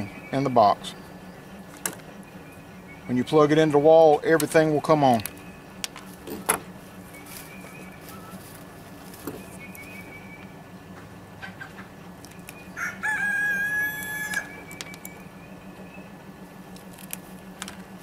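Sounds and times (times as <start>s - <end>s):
rooster crowing: 12.7s - 14.6s.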